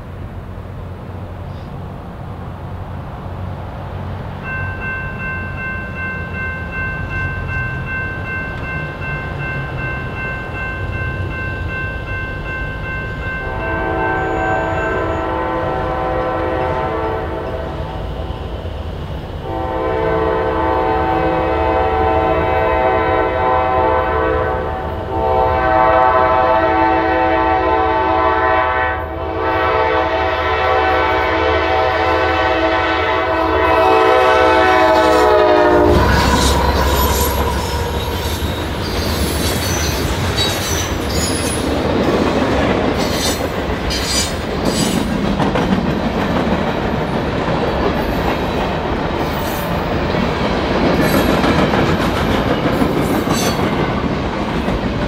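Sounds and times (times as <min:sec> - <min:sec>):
low rumble of passing train: 0:00.0 - 0:55.0
locomotive horn blasts: 0:13.5 - 0:18.2, 0:19.4 - 0:39.4.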